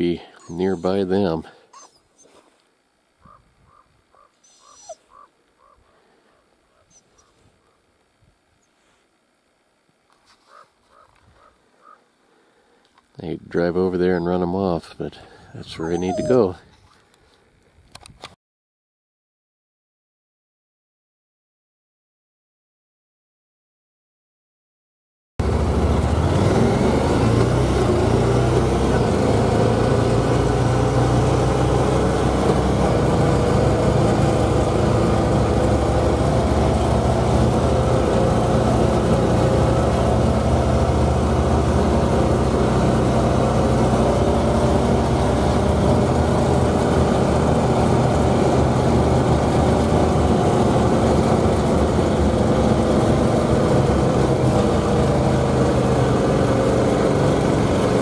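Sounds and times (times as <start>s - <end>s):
vehicle engine: 0.0s - 1.5s, 25.4s - 58.0s
road noise: 0.0s - 2.4s, 25.4s - 58.0s.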